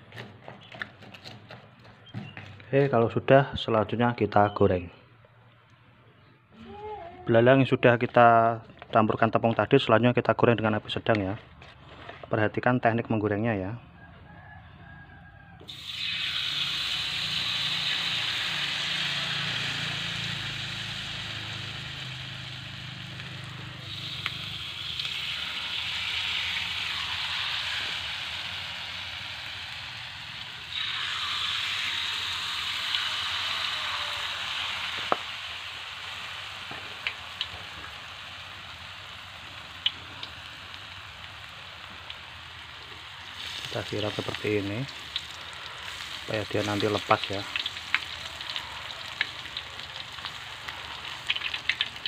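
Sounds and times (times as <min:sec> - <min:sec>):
batter sizzling in hot oil: 0:15.7 - 0:52.0.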